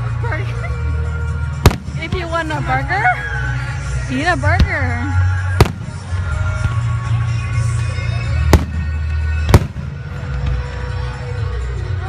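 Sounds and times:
music playing: 0:00.0 - 0:12.0
firework booms: 0:01.6 - 0:02.4, 0:05.6 - 0:06.8, 0:08.5 - 0:10.1.

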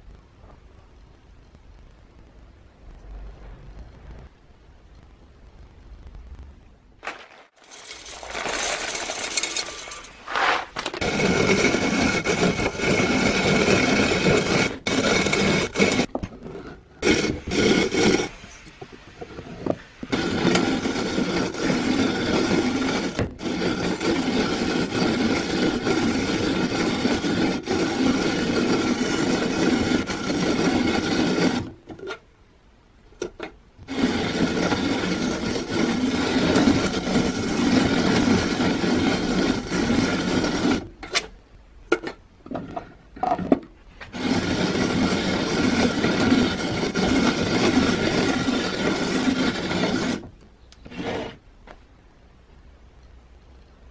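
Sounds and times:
hand-cranked coffee grinder grinding: 0:07.6 - 0:18.5, 0:19.2 - 0:32.2, 0:33.2 - 0:41.3, 0:43.2 - 0:51.4.

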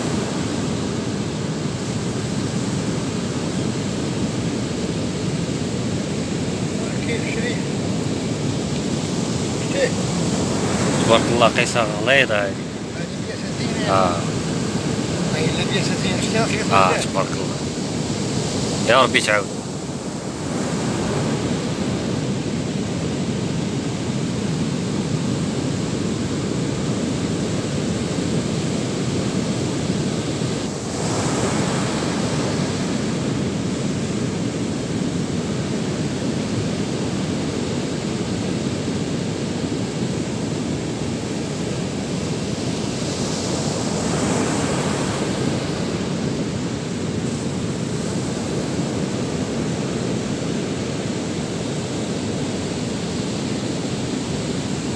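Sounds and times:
surf breaking on beach: 0:06.6 - 0:19.5.

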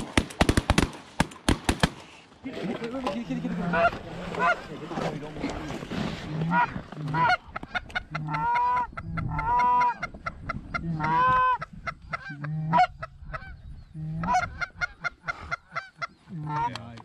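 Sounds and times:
goose clucking: 0:03.3 - 0:05.5, 0:06.3 - 0:17.0
goose honking: 0:03.5 - 0:04.7, 0:06.4 - 0:10.1, 0:10.7 - 0:16.8.

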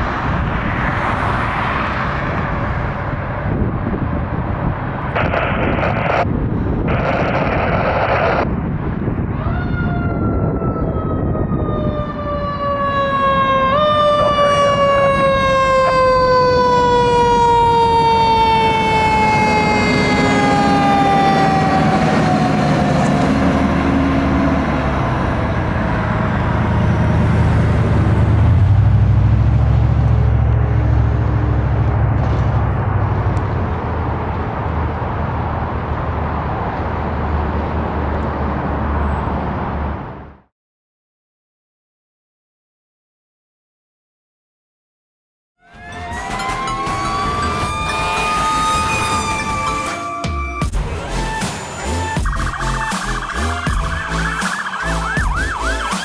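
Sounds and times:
mechanical siren winding down: 0:09.7 - 0:25.0, 0:45.6 - 0:56.0
diesel engine rumbling: 0:13.2 - 0:40.5, 0:45.7 - 0:56.0.

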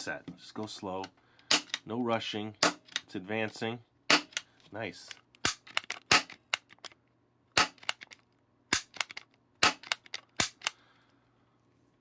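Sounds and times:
toy cap pistol bangs: 0:07.6 - 0:07.9.

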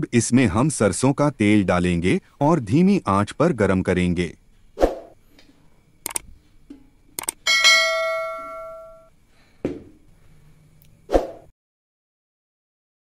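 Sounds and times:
mouse clicks: 0:06.0 - 0:06.3, 0:07.2 - 0:07.4
bell chime: 0:07.5 - 0:09.1.

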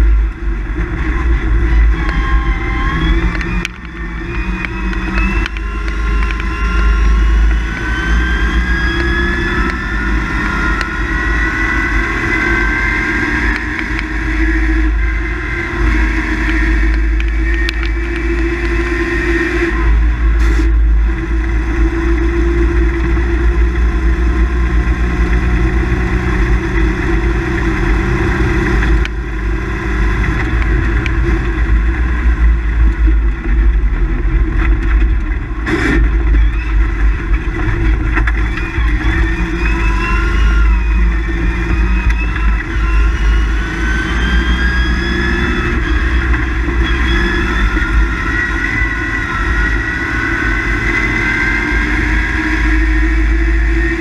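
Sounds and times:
low rumble of road noise: 0:00.0 - 0:54.0
truck engine under load: 0:00.0 - 0:54.0.

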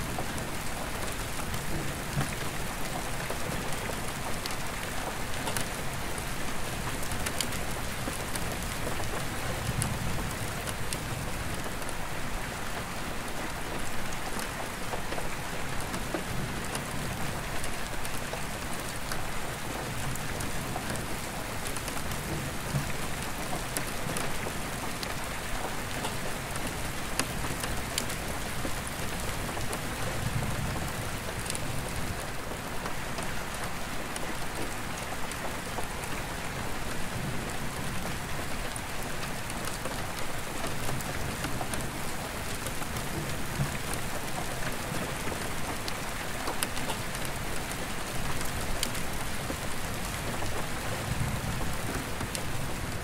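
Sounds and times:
rain on a skylight: 0:00.0 - 0:53.0.

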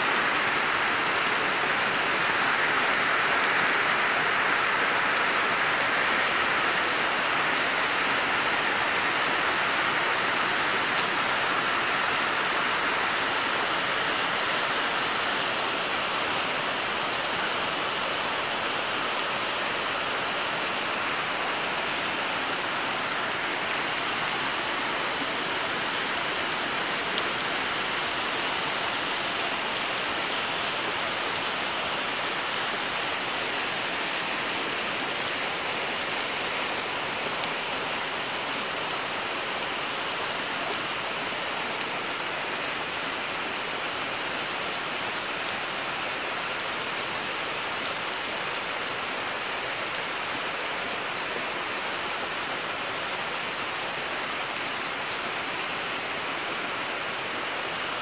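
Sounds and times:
heavy rain splashing into puddles: 0:00.0 - 0:58.0.

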